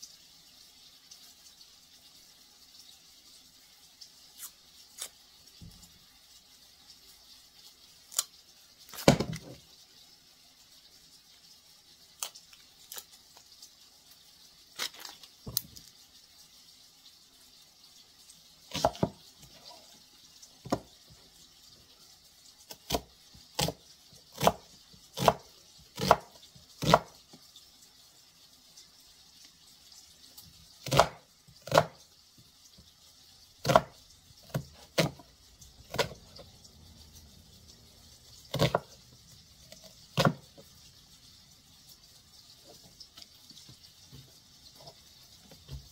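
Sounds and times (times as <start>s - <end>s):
knife chopping on cutting board: 9.0s - 9.6s, 18.7s - 19.2s, 26.0s - 27.1s, 30.8s - 31.9s, 33.6s - 33.9s, 38.5s - 38.9s, 40.2s - 40.4s.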